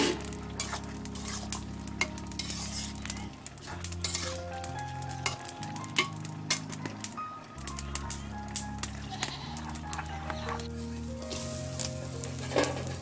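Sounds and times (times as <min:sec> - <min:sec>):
metal spoon scraping a pan: 0:00.0 - 0:04.4, 0:05.2 - 0:06.8, 0:11.3 - 0:13.0
soft background music: 0:00.0 - 0:13.0
spoon clinking against pan: 0:04.0 - 0:04.4.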